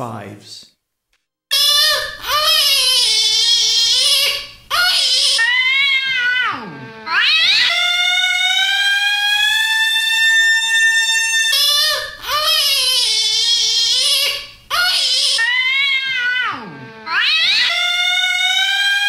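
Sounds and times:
cat yowling: 0:04.8 - 0:14.2, 0:14.8 - 0:19.0.

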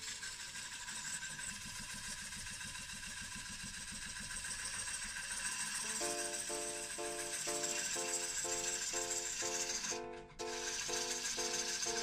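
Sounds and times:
wood lathe cutting hiss: 0:04.4 - 0:12.0.

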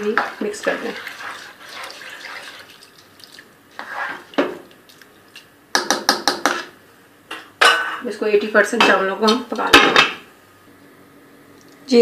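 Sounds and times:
sauce trickling into a pot: 0:00.7 - 0:05.5.

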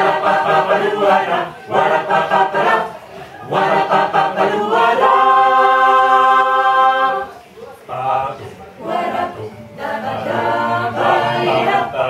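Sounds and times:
mixed choir singing a cappella: 0:00.0 - 0:12.0.

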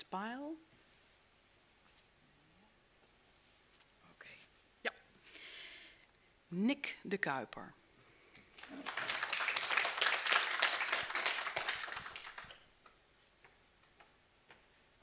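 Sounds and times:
small audience applause: 0:08.5 - 0:12.7.

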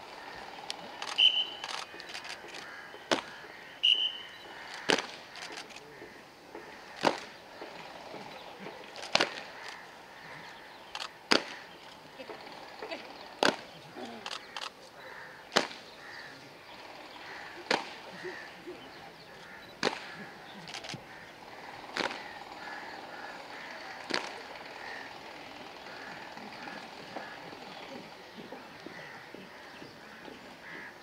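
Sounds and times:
faint clicks: 0:00.6 - 0:03.4
sharp claps or knocks: 0:02.0 - 0:03.5, 0:04.6 - 0:05.3, 0:06.5 - 0:07.8, 0:09.0 - 0:09.6, 0:11.3 - 0:11.7, 0:13.4 - 0:13.7, 0:15.5 - 0:15.9, 0:17.6 - 0:18.1, 0:19.8 - 0:20.3, 0:22.0 - 0:22.4, 0:24.0 - 0:24.5.

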